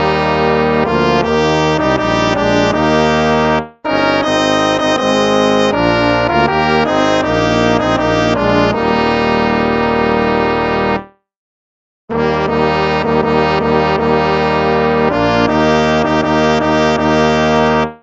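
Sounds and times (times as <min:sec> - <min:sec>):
brass hymn chords: 0:00.0 - 0:11.1, 0:12.1 - 0:18.0.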